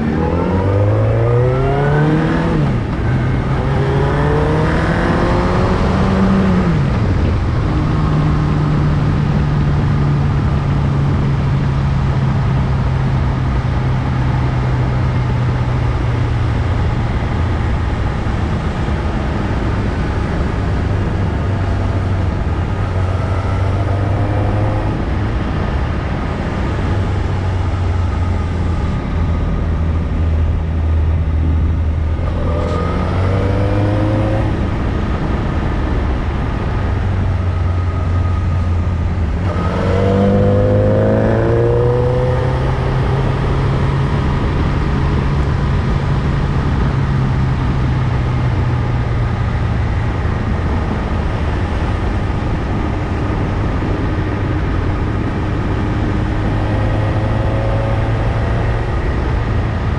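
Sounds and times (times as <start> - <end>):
motorcycle engine revving: 0.0 - 9.9, 19.6 - 46.8
wind rushing over microphone: 0.0 - 59.9.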